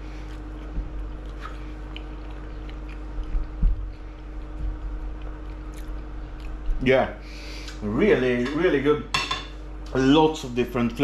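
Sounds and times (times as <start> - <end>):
person chewing food: 0.0 - 6.8.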